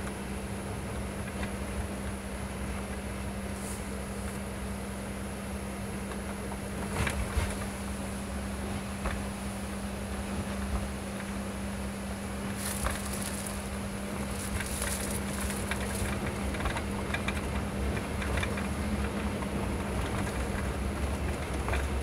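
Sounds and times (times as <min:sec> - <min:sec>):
bus engine drone: 0:00.0 - 0:22.0
tyre hiss on wet road: 0:03.5 - 0:04.3
light clicks and rattles: 0:12.6 - 0:21.9.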